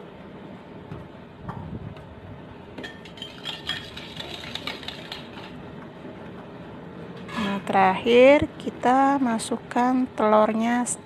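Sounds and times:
ladle scraping and clinking a pot: 2.8s - 5.6s.

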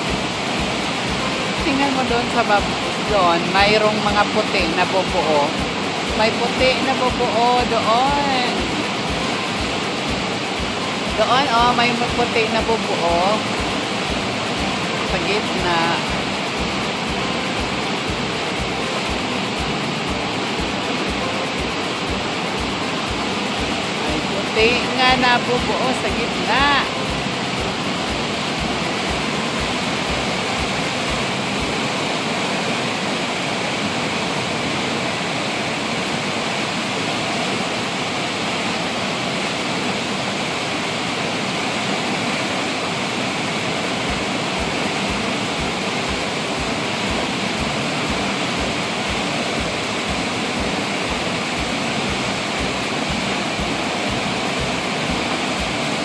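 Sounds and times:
floodwater rushing through a spillway: 0.0s - 56.0s.

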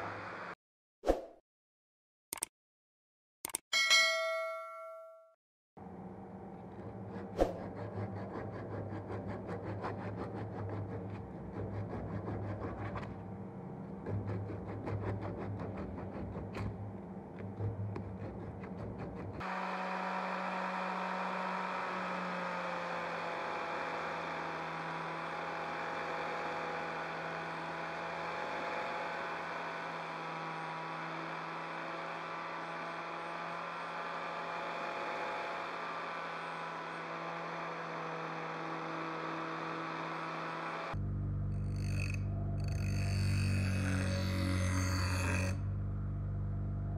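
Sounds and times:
angle grinder whine: 19.4s - 46.9s.

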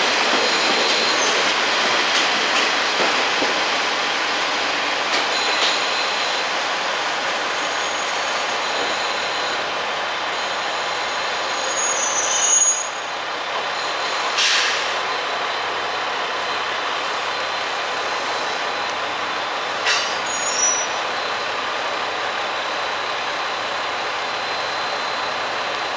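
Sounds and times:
railcar running noise: 0.0s - 25.9s
brake squeal: 10.4s - 13.2s, 19.9s - 21.4s
air brake hisses: 14.4s - 15.0s, 19.8s - 20.8s.

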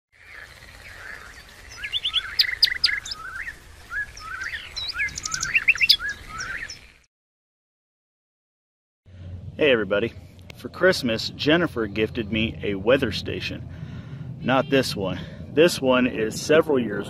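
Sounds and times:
songbirds chirping and singing: 0.2s - 7.0s, 14.3s - 17.0s.

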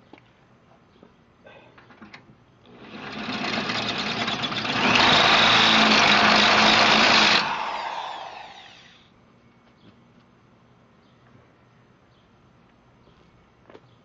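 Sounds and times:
electric drill boring through steel: 2.7s - 9.0s.

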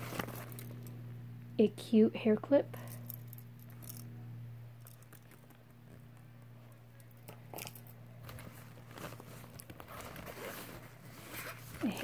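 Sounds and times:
rustling in backpack: 0.0s - 0.9s, 7.5s - 12.0s
steady low hum: 0.0s - 12.0s.

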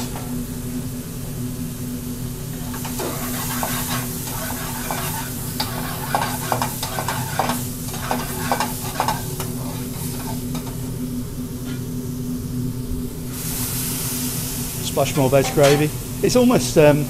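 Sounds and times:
food sizzling in a frying pan: 0.0s - 17.0s
steady low hum: 0.0s - 17.0s
metal spoon scraping a pan: 2.7s - 10.6s, 15.2s - 16.0s.

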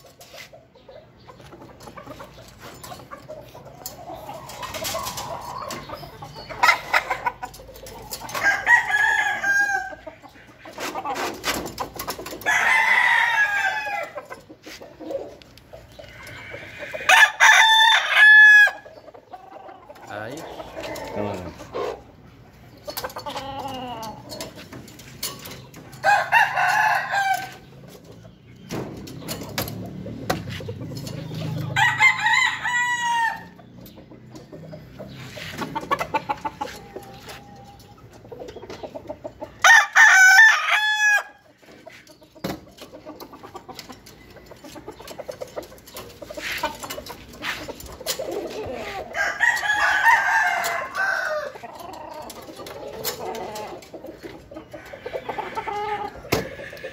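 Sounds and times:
roosters crowing: 3.4s - 22.4s, 23.1s - 28.0s, 28.7s - 38.3s, 39.4s - 56.9s
metal cage doors clicking: 22.8s - 31.8s.

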